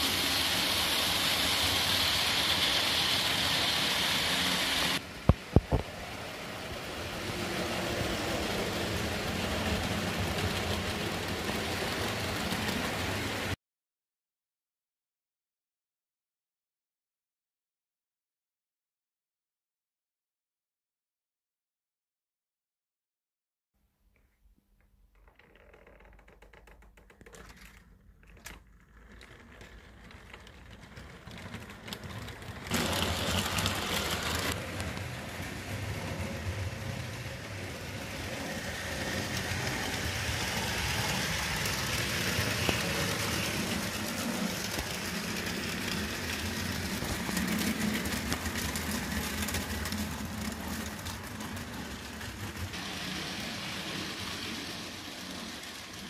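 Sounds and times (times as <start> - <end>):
model train wheels clattering: 0.0 - 13.6, 26.6 - 56.0.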